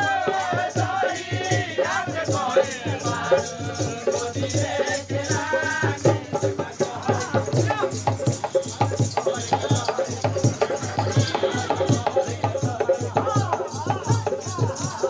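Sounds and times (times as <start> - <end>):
barrel drum beats: 0.0 - 15.0
jingling rattle: 6.4 - 15.0
person singing: 9.5 - 15.0.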